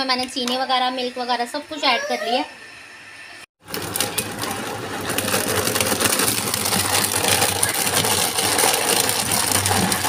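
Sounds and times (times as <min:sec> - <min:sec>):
blender motor running: 0:03.6 - 0:10.0.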